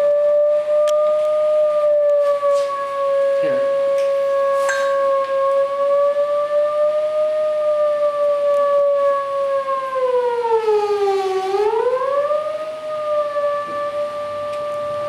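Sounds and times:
electronic test tone gliding: 0.0 - 7.2.

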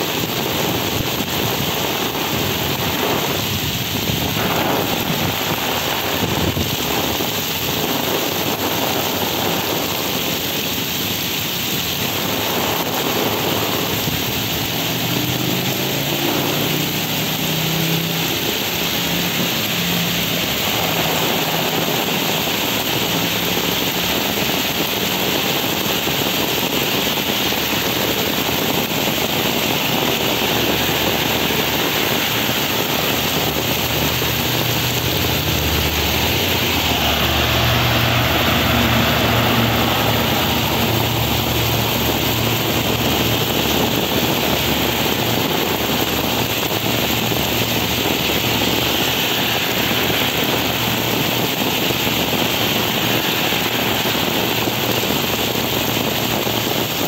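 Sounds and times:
torrential rain pouring: 0.0 - 57.0
vehicle low rumble: 0.0 - 57.0.

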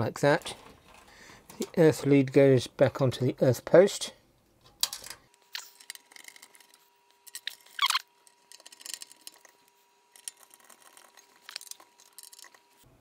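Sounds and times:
short squeak: 7.8 - 8.0.

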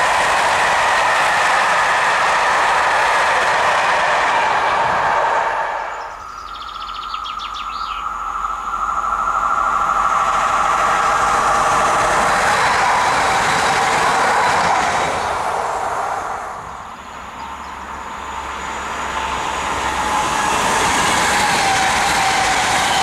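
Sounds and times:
freight train rolling past: 0.0 - 23.0
passenger train approaching: 0.0 - 23.0
bird chirping: 5.9 - 9.5, 17.0 - 18.0.

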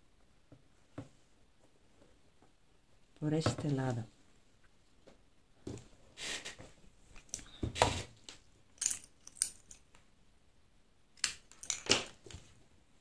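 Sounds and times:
clicks and clinks of scissors: 8.8 - 9.8.

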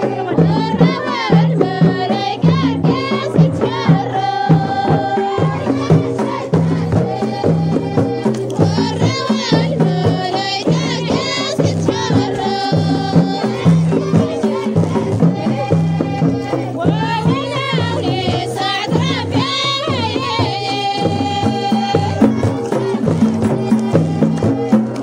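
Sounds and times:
steady drum beat: 0.0 - 25.0
voices singing: 0.0 - 25.0.

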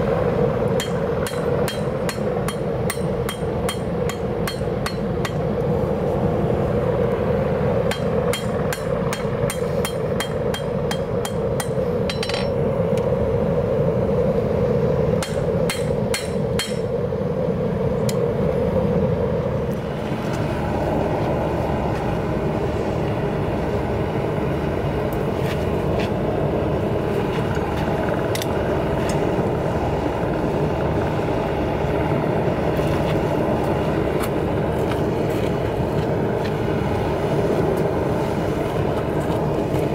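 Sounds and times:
gas forge burner roaring: 0.0 - 39.9
hammer striking metal on anvil: 0.8 - 5.5, 7.9 - 12.6, 15.2 - 16.9.

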